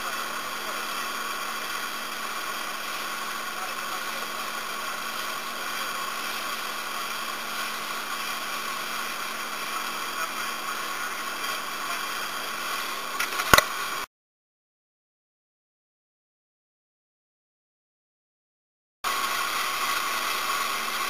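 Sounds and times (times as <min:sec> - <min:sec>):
motorboat engine running: 0:00.0 - 0:14.0, 0:19.1 - 0:21.0.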